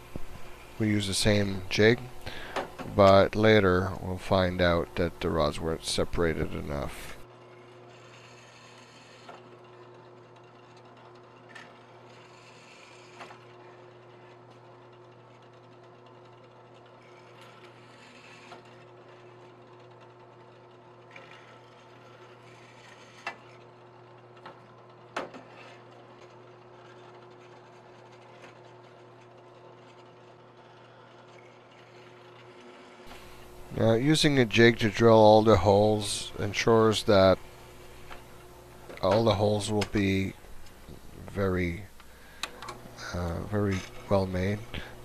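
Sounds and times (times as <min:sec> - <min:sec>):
drill press motor humming: 0:00.0 - 0:45.0
drill bit grinding metal: 0:30.4 - 0:45.0.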